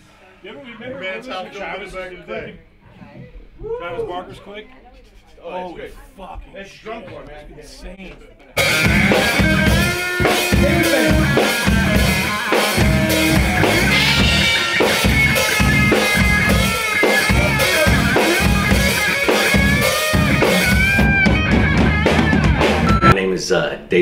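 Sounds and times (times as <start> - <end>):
distorted electric guitar lead: 8.6 - 23.2
rock band playing loudly: 8.6 - 23.2.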